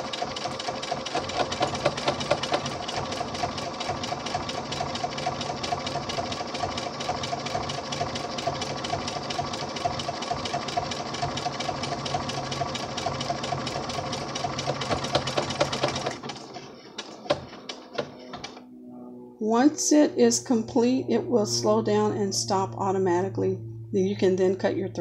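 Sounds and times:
sewing machine stitching: 0:00.0 - 0:18.6.

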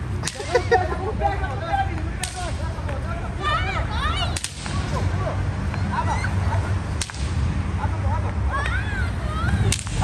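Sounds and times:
firecracker crack: 0:00.0 - 0:00.8, 0:02.1 - 0:03.0, 0:04.2 - 0:05.1, 0:06.9 - 0:07.7, 0:09.5 - 0:10.0.

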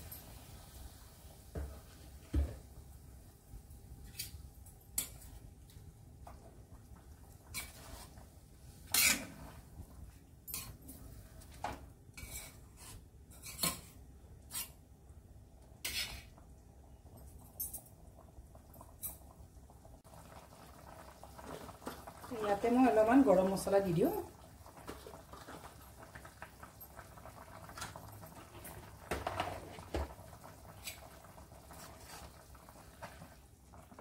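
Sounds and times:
spoon scraping a steel pan: 0:08.9 - 0:09.4, 0:12.2 - 0:14.8, 0:15.8 - 0:16.3.

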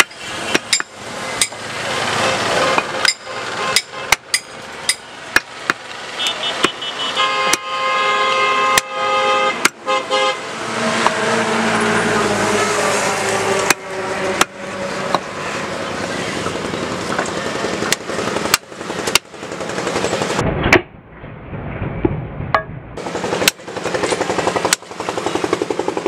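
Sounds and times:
cleaver chopping meat and bone: 0:00.0 - 0:01.6, 0:02.7 - 0:05.9, 0:06.5 - 0:06.9, 0:09.6 - 0:09.8, 0:13.6 - 0:15.3, 0:17.1 - 0:19.3
street traffic noise: 0:00.0 - 0:20.9, 0:22.5 - 0:26.0
vehicle horn: 0:02.0 - 0:04.3, 0:06.2 - 0:15.7.

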